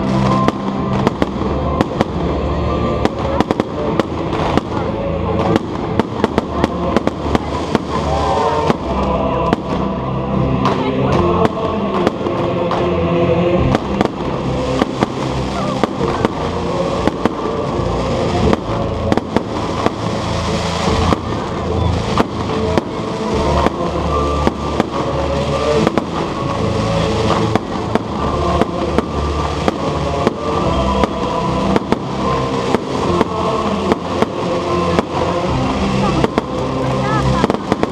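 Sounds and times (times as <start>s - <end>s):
fireworks bangs and crackles: 0.0s - 37.9s
music playing: 0.0s - 37.9s.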